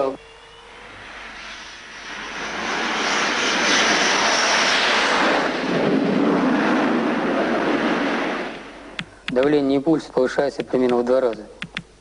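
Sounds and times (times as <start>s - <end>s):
jet engines at full power: 0.0s - 9.2s.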